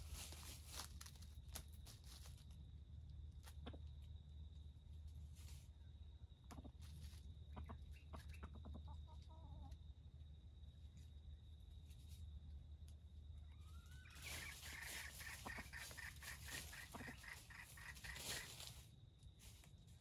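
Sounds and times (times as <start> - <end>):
rooster clucking: 7.5 - 9.8, 14.1 - 18.7.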